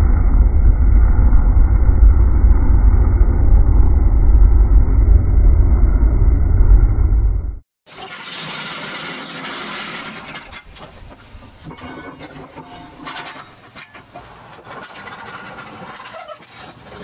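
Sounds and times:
steel fork scraping steel: 7.9 - 17.0
metal knocks and rubbing: 8.4 - 17.0.

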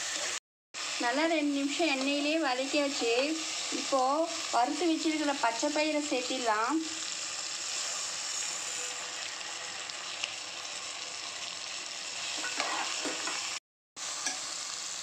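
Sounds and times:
food sizzling in hot oil: 0.0 - 15.0
metal spatula stirring: 12.4 - 13.4.

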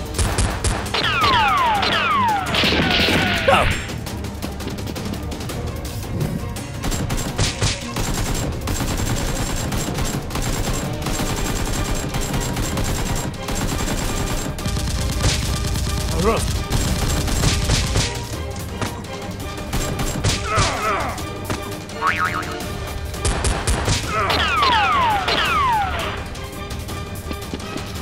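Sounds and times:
background music: 0.0 - 28.0
machine-gun gunfire: 6.8 - 18.3, 19.7 - 20.8.

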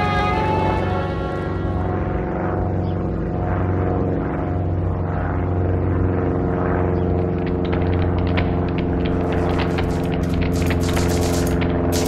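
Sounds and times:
propeller plane engine drone: 0.0 - 12.0
sharp clicks: 7.4 - 12.0.

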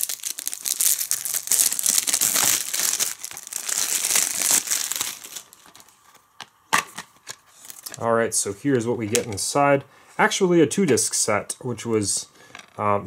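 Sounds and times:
plastic shrink-wrap crinkling: 0.0 - 6.3, 7.2 - 8.0.

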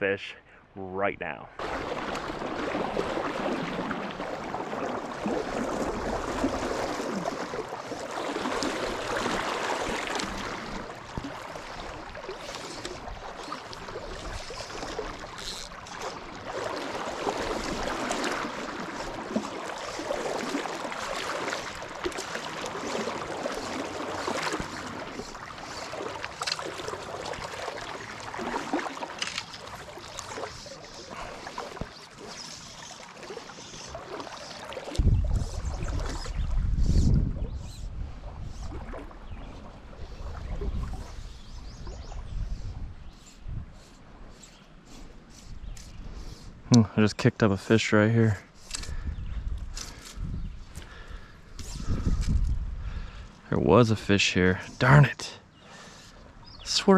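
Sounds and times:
small splashes and drips: 1.6 - 36.3
river water sloshing: 1.6 - 56.9.

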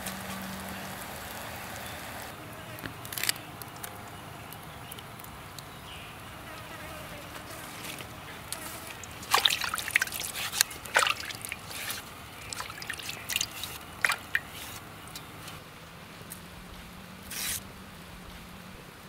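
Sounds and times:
water splashing and dripping: 0.0 - 2.3, 7.4 - 15.6.

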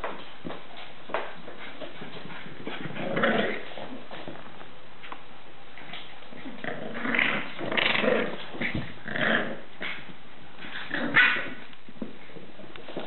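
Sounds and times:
puppies growling: 2.6 - 4.1, 6.3 - 11.7.

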